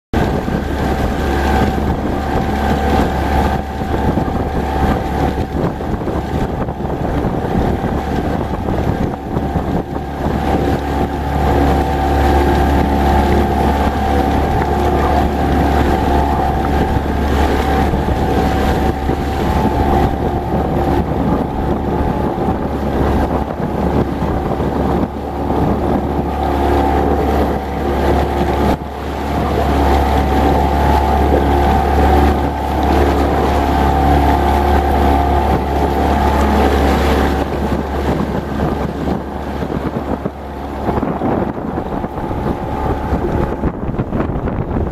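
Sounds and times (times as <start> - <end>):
motorboat engine running: 0.1 - 44.9
wind buffeting microphone: 0.1 - 44.9.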